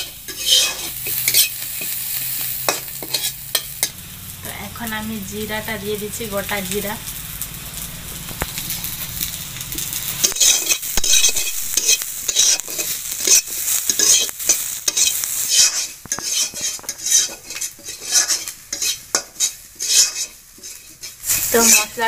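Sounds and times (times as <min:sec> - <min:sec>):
metal spatula scraping and stirring: 0:00.0 - 0:04.0, 0:08.4 - 0:22.0
oil sizzling: 0:00.0 - 0:22.0.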